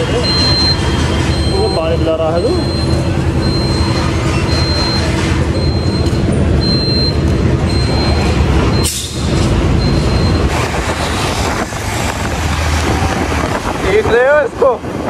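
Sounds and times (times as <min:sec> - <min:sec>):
road and wind noise: 0:00.0 - 0:15.0
faint high beep: 0:00.2 - 0:09.0.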